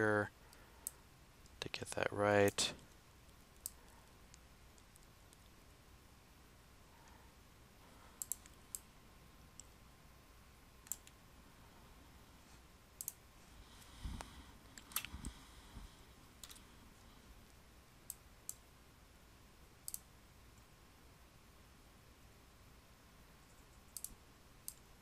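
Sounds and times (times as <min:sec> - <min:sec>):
computer mouse clicks: 0:02.9 - 0:05.5, 0:08.2 - 0:08.9, 0:10.8 - 0:11.2, 0:13.0 - 0:13.2, 0:14.8 - 0:15.4, 0:16.4 - 0:16.6, 0:19.8 - 0:20.1, 0:23.5 - 0:24.9.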